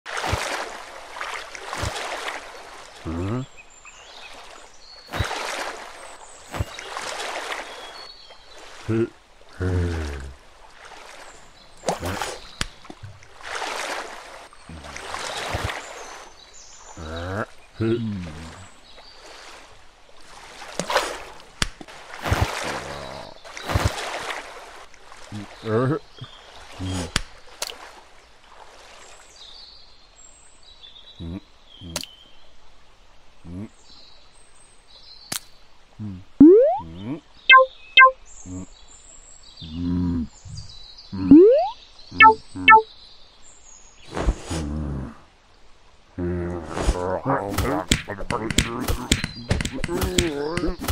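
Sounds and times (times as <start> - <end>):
flowing water: 0.1 - 29.4, 35.7 - 38.2, 40.2 - 42.9, 45.7 - 50.9
man grunting: 3.1 - 3.4
faint bird chirps: 36.0 - 38.7, 39.6 - 42.9
cartoon water splash: 36.4 - 36.9, 37.5 - 38.2, 41.3 - 42.8.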